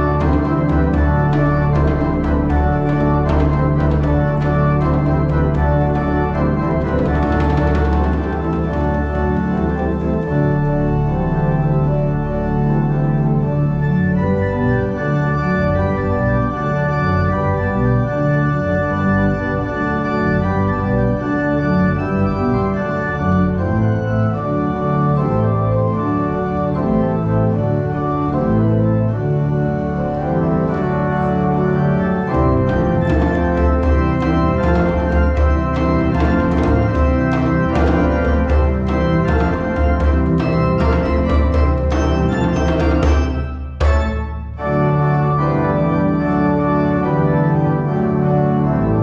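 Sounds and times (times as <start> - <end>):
hand drum strikes: 0.0 - 9.8, 33.0 - 44.3
pipe organ chords: 0.0 - 49.0.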